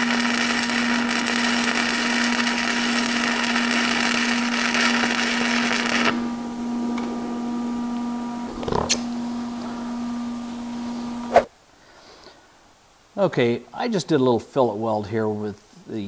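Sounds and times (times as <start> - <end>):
welding arc crackling: 0.0 - 7.2, 8.3 - 11.3
welder hum: 0.0 - 11.5.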